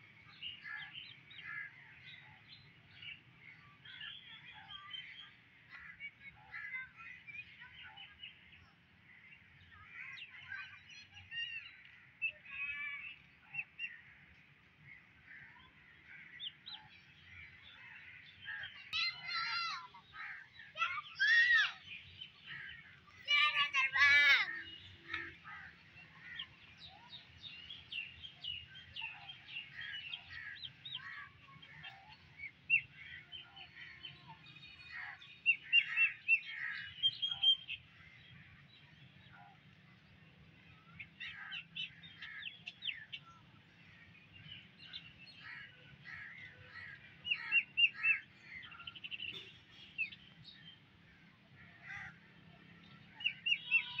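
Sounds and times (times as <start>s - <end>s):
birds chirping: 0.0s - 54.0s.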